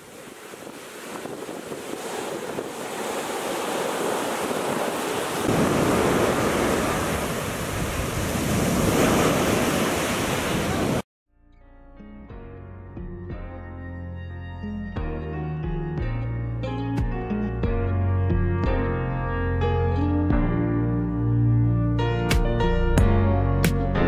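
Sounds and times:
surf washing up beach: 0.0s - 11.0s
wind noise on microphone: 0.0s - 11.0s
soft music: 11.3s - 24.0s.

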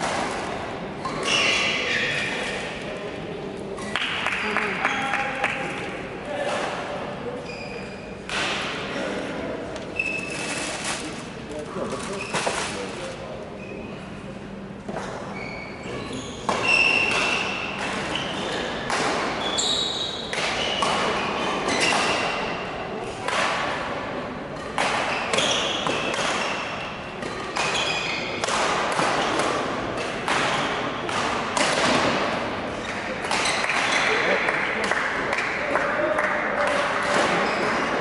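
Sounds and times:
shoes squeaking: 1.0s - 2.6s, 7.4s - 8.1s, 9.9s - 10.8s, 15.0s - 22.0s
rackets striking shuttlecock: 16.5s - 18.1s, 20.2s - 24.0s, 24.6s - 35.4s.

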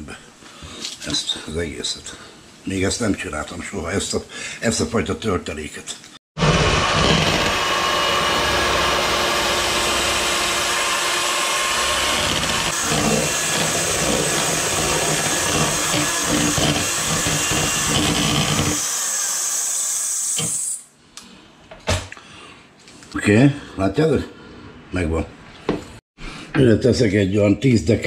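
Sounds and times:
food processor motor running: 6.4s - 18.8s.

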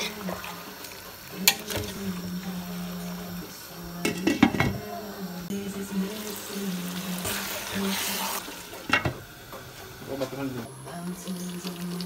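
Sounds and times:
slow sung melody: 0.0s - 9.0s, 10.7s - 12.0s
cookware clattering against pot: 4.0s - 4.8s, 8.9s - 9.2s.

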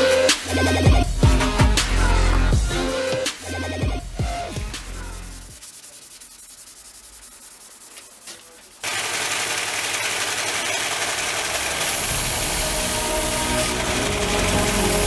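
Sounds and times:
sanding on a metal blade: 4.9s - 15.0s
loud power tool running: 8.8s - 15.0s.

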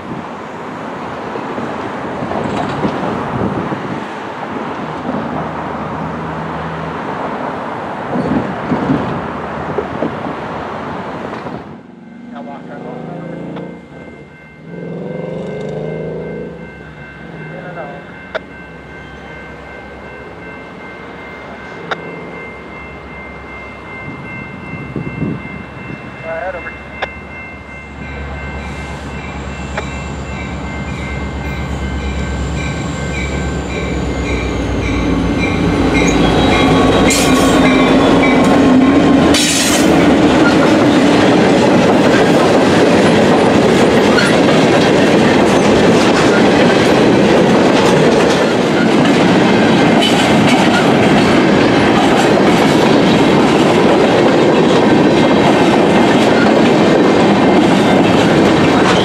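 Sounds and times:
diesel locomotive engine drone: 0.0s - 59.0s
freight cars rumbling: 0.0s - 59.0s
crossing bell ringing: 11.6s - 59.0s
wheels clacking over rail joints: 35.4s - 59.0s.

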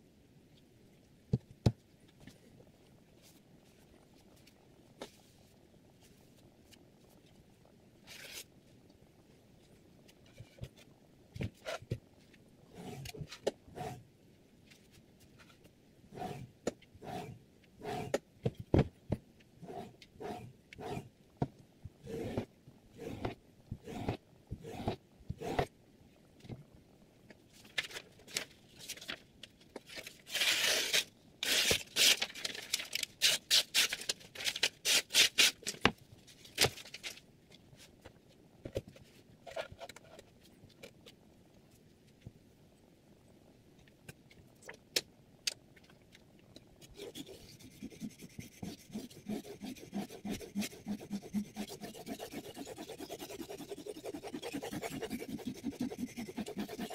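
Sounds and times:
dull rubbing strokes: 46.8s - 56.9s.

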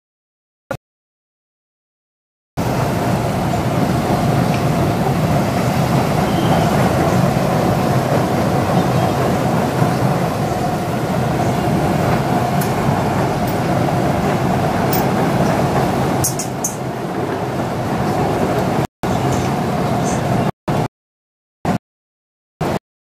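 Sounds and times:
bumper-boat motors droning: 2.6s - 20.5s.

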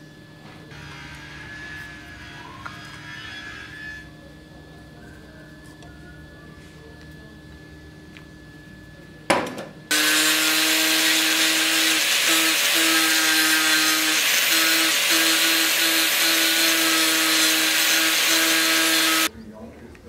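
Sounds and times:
angle grinder grinding wood: 0.7s - 4.1s, 9.9s - 19.3s.

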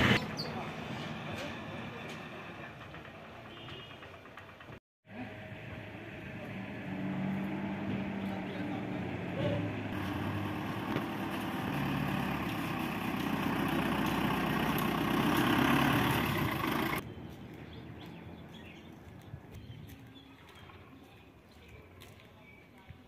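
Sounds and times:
street background: 0.0s - 23.0s
armoured vehicle engine running: 1.4s - 17.0s.

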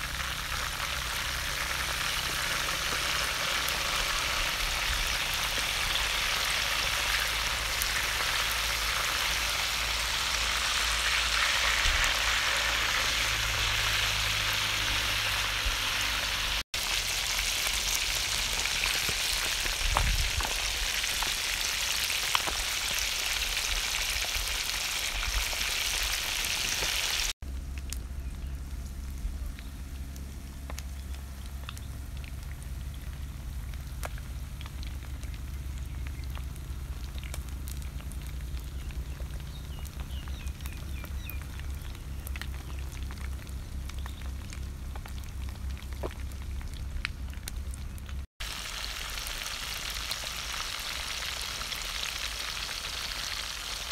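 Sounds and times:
fish deep-frying in hot oil: 0.0s - 53.9s
faint crackles: 16.8s - 53.9s.

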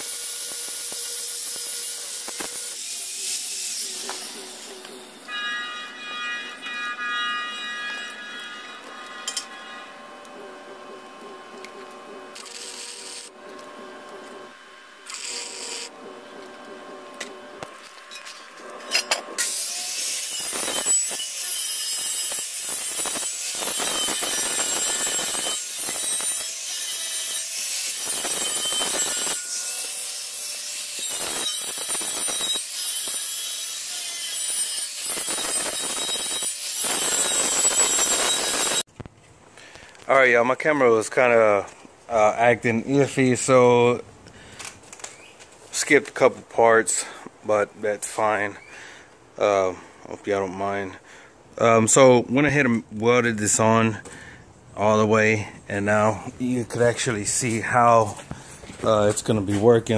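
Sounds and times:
angle grinder grinding steel: 0.0s - 38.9s.

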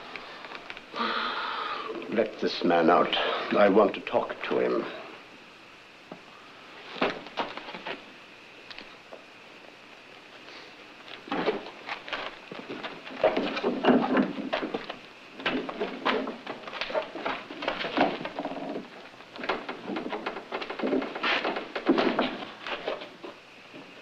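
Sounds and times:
knocks thuds and scuffling: 11.2s - 24.0s.

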